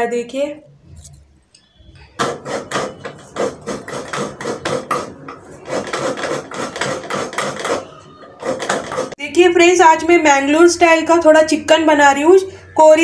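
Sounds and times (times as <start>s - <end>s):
coconut being scraped: 2.0s - 9.2s.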